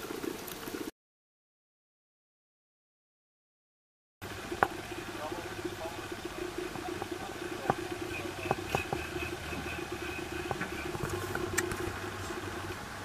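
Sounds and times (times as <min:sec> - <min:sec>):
boat engine droning: 0:04.2 - 0:13.0.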